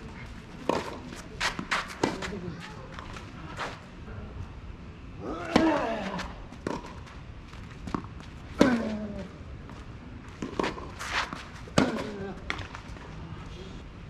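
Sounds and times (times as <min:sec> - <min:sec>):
tennis ball bouncing: 0:00.6 - 0:02.3, 0:06.6 - 0:07.1, 0:07.8 - 0:08.9, 0:10.3 - 0:12.8
racket striking tennis ball: 0:10.4 - 0:12.7.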